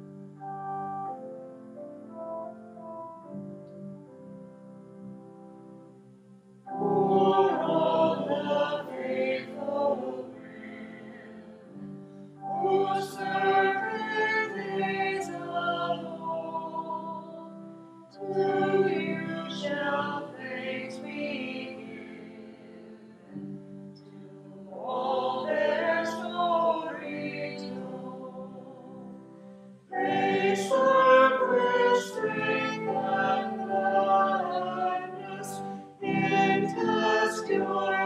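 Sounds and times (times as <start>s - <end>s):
group singing a hymn: 6.7s - 11.8s, 12.4s - 29.2s, 29.9s - 38.0s.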